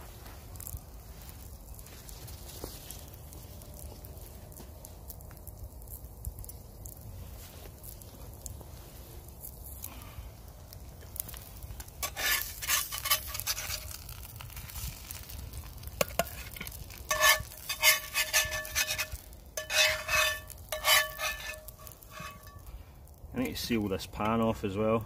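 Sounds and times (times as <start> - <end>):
metal spatula scraping a pan: 12.0 - 14.2, 16.0 - 22.7.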